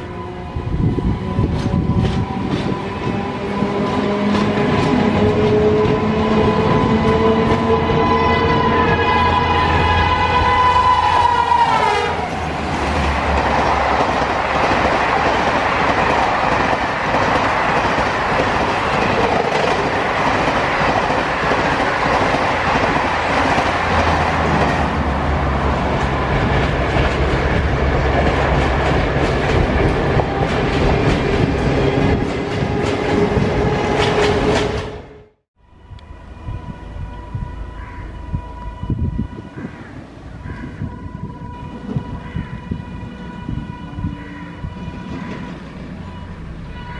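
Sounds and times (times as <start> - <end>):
locomotive horn: 0.0 - 14.3, 23.3 - 46.9
train wheels clattering on rails: 1.2 - 7.9, 12.5 - 25.0, 25.6 - 35.0.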